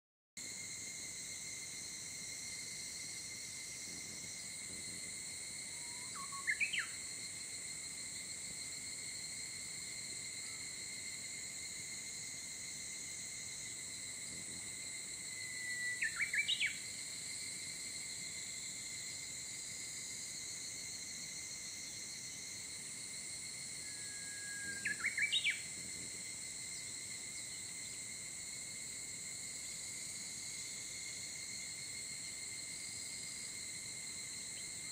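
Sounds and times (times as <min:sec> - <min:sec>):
insects calling: 0:00.4 - 0:34.9
songbird singing: 0:05.8 - 0:07.0, 0:15.4 - 0:16.9, 0:23.8 - 0:25.7.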